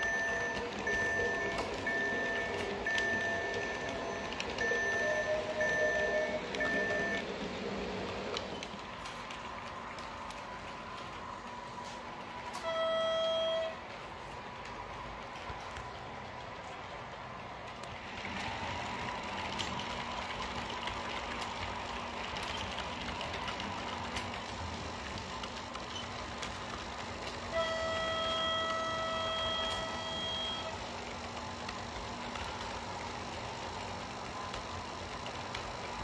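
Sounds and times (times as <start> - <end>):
model train rolling on track: 0.0 - 36.0
locomotive horn: 12.5 - 13.8, 27.5 - 30.8.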